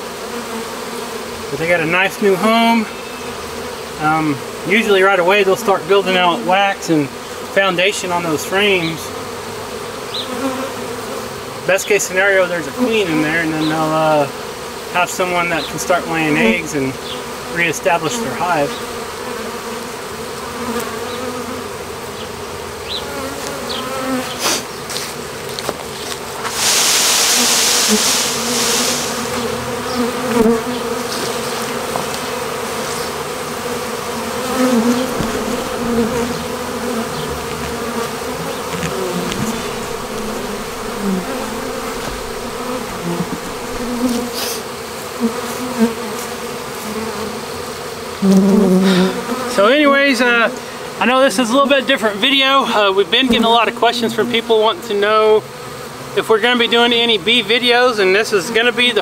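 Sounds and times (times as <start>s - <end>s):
honey bees buzzing: 0.0s - 59.0s
loud rush of hiss: 26.4s - 29.6s, 39.2s - 44.7s.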